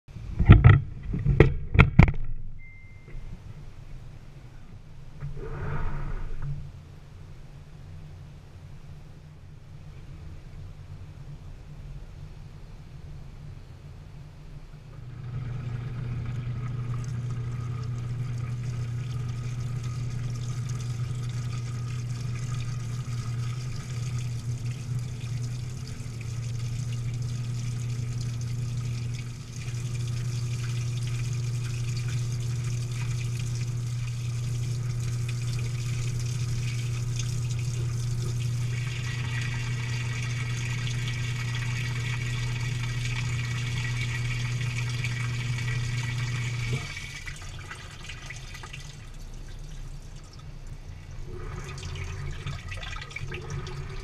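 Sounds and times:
washing machine motor hum: 14.6 - 54.0
water filling hiss: 15.1 - 49.2.

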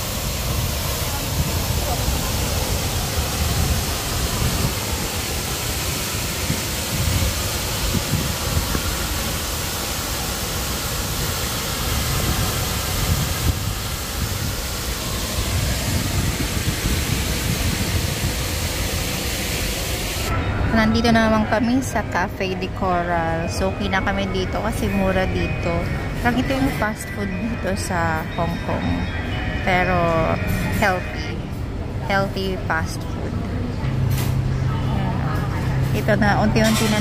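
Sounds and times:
fountain water splashing into pond: 0.0 - 20.3.

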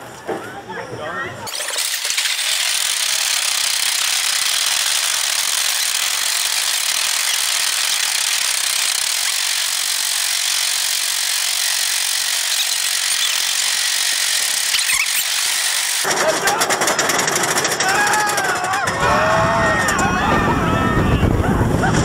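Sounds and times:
rushing wind and rumble: 18.9 - 22.0.

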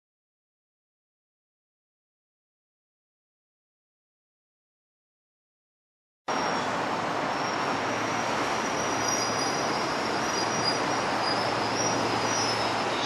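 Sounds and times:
train rumbling on rails: 6.3 - 13.0.

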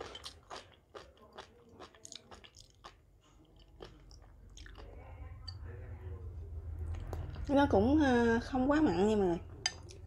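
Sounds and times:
person chewing crisp crunches: 0.0 - 5.0.

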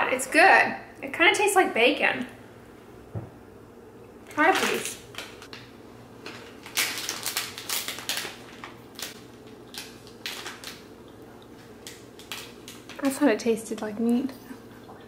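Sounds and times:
steady low hum: 0.0 - 15.0
snack package crinkling: 4.4 - 13.1.

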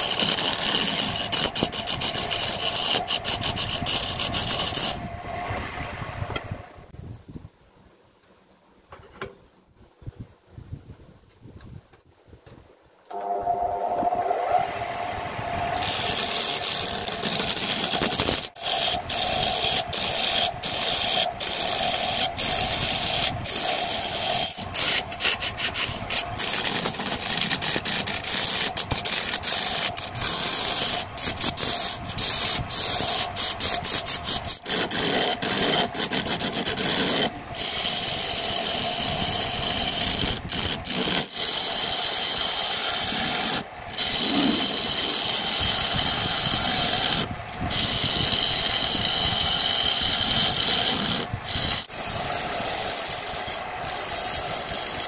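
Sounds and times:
turning tool scraping wood: 0.0 - 5.6, 15.7 - 55.0
wood lathe motor humming: 13.1 - 55.0.

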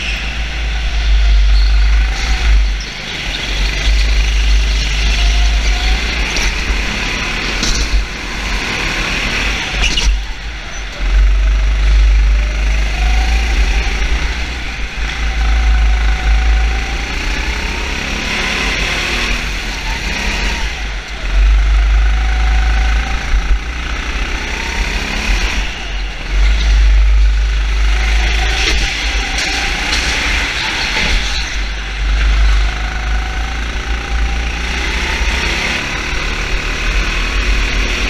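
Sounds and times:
heavy low rumble: 0.0 - 8.4, 20.6 - 24.4
racing engine revving: 0.0 - 38.0.

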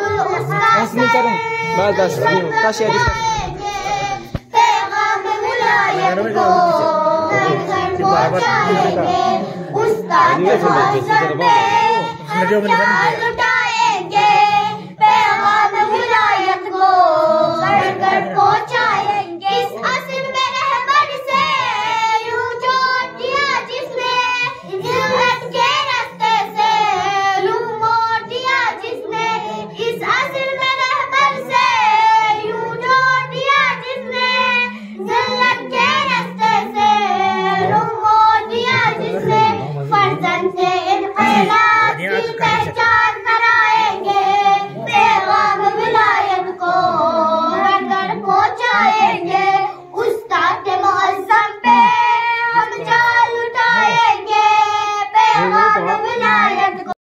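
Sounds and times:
children singing into microphones: 0.0 - 57.0.

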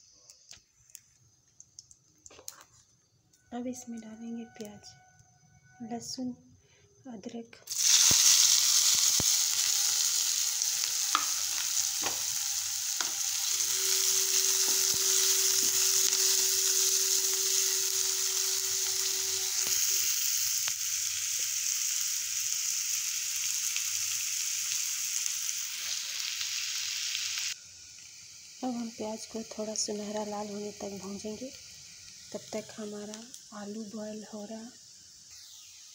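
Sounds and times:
vegetables sizzling in hot oil: 7.7 - 35.9.

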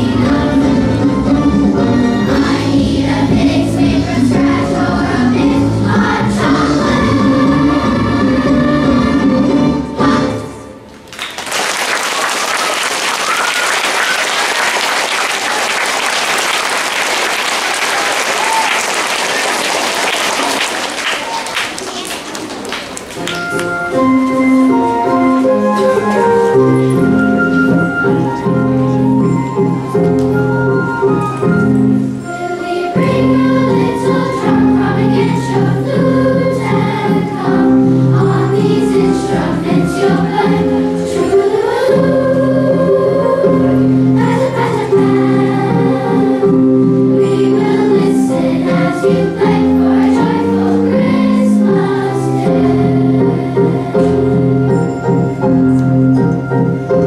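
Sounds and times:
children's choir singing: 0.0 - 57.0
children cheering: 11.1 - 23.3
audience applauding: 11.1 - 23.6.

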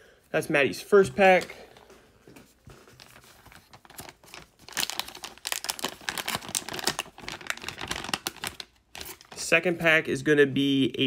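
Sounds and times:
foil pouch crinkling: 2.6 - 9.5.

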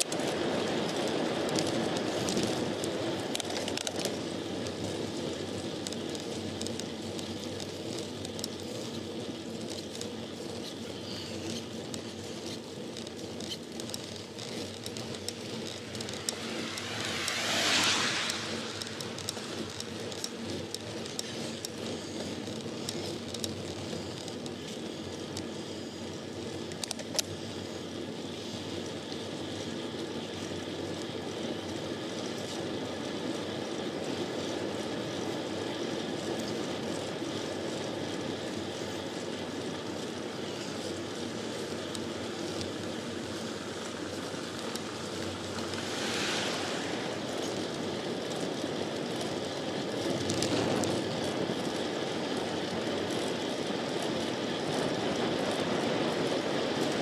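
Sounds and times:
small clicks and rattles: 0.0 - 57.0
wind and bike tyre noise: 0.0 - 57.0
vehicle passing: 14.1 - 21.5, 43.5 - 48.6.

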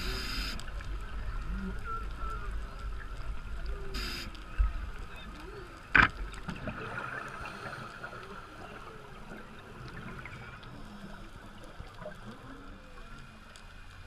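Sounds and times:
muffled underwater rushing hiss: 0.0 - 1.1, 3.8 - 5.0, 5.9 - 13.6
faint clicks: 0.0 - 8.3, 9.2 - 14.0.

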